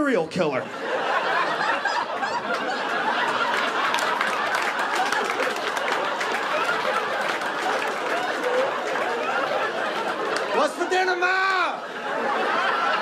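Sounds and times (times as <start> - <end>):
audience laughing: 0.6 - 13.0
scattered clapping: 2.4 - 10.8.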